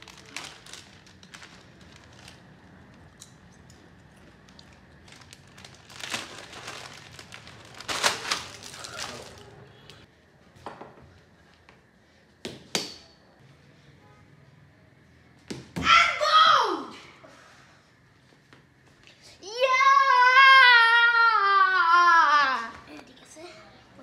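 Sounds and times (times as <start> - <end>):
chip bag crinkling: 0.0 - 3.0, 4.4 - 9.5.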